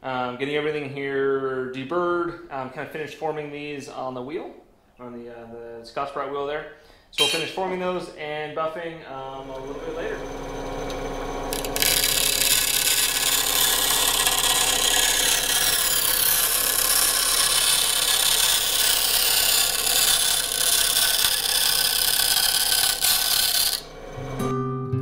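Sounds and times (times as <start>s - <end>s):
band saw cutting metal: 7.2s - 7.6s, 9.2s - 24.6s.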